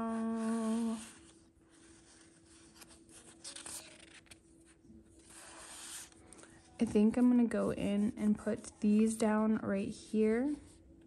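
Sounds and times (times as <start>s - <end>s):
faint steady hum: 0.0s - 11.0s
paper sheets rustling and sliding: 0.4s - 4.4s.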